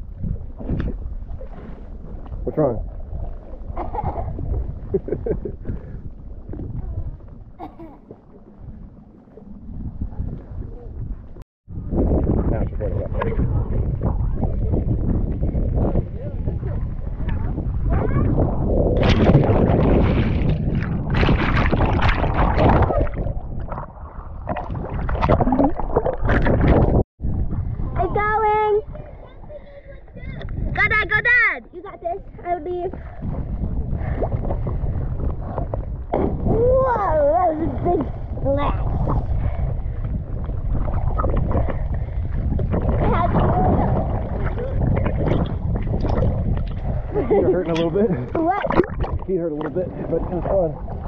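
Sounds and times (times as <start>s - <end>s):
muffled underwater gurgling: 8.0s - 29.2s, 32.7s - 51.0s
water splashing: 16.4s - 27.0s, 32.7s - 51.0s.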